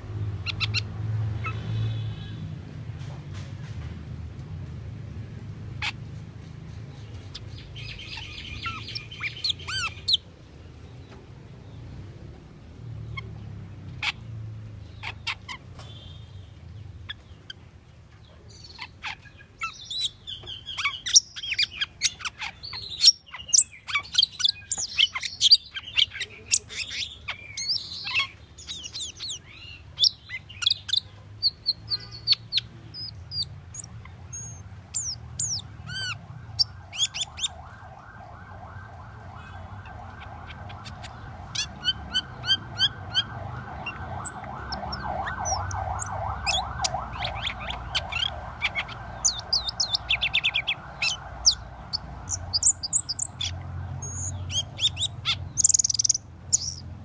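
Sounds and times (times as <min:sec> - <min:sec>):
starling chirping and whistling: 0:07.2 - 0:10.2, 0:18.5 - 0:38.8, 0:39.4 - 0:56.9.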